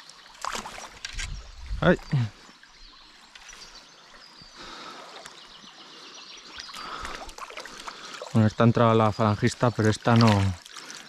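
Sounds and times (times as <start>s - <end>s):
stream water running: 0.0s - 11.0s.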